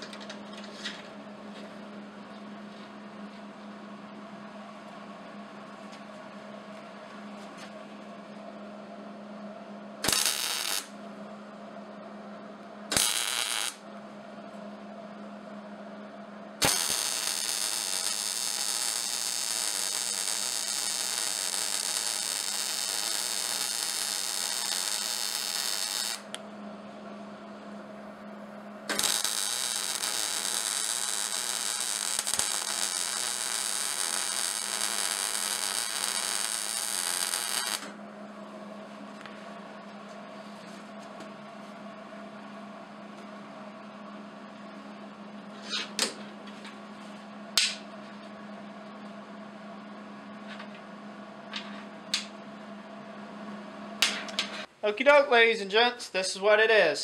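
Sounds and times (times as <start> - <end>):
steady hum: 0.0 - 57.0
welding arc crackling: 10.0 - 10.9, 12.9 - 13.8, 16.6 - 26.4, 28.9 - 37.9.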